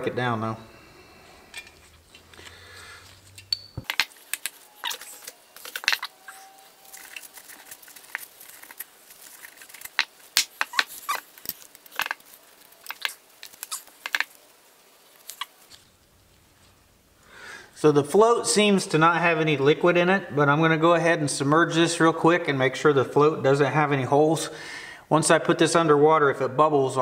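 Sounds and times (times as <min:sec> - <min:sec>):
small metal parts clicking: 0:03.1 - 0:14.4.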